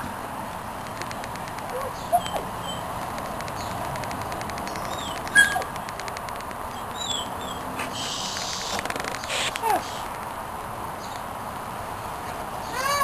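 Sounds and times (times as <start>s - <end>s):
steady hiss: 0.0s - 12.7s
birds chirping: 1.4s - 10.2s, 10.9s - 11.3s.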